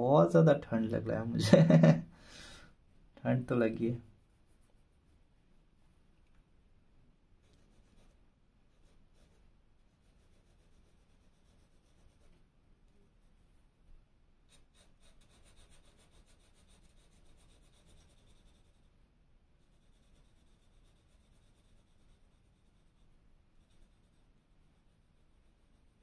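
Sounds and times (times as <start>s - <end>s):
pencil scratching on paper: 3.6s - 5.2s, 7.4s - 12.4s, 13.1s - 13.6s, 14.5s - 19.0s, 19.6s - 26.0s.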